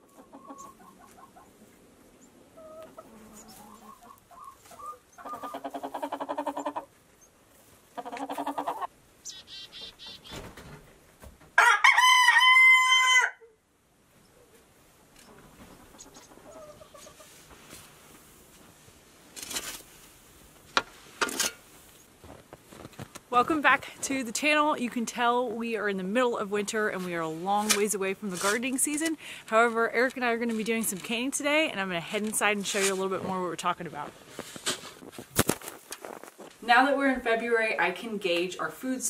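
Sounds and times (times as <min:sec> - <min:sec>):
hens squawking: 0:00.0 - 0:01.6, 0:02.5 - 0:07.0, 0:07.9 - 0:10.4, 0:15.6 - 0:17.4
hens clucking: 0:00.0 - 0:07.0, 0:07.6 - 0:10.4, 0:15.3 - 0:17.6
rooster crowing: 0:11.6 - 0:13.5.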